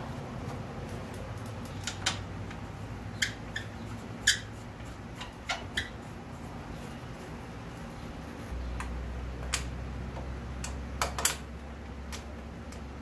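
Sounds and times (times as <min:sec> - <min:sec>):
parts clicking and tapping: 0:08.8 - 0:12.9.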